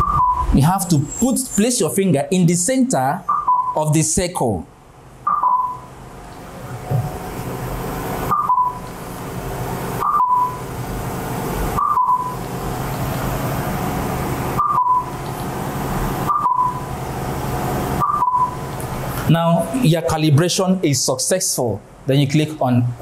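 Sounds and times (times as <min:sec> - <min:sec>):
steady background hum: 0:00.0 - 0:23.0
two-note electronic beeps: 0:05.3 - 0:05.9, 0:08.3 - 0:08.9, 0:10.0 - 0:10.6, 0:11.8 - 0:12.4, 0:14.6 - 0:15.2, 0:16.2 - 0:16.9, 0:18.0 - 0:18.6.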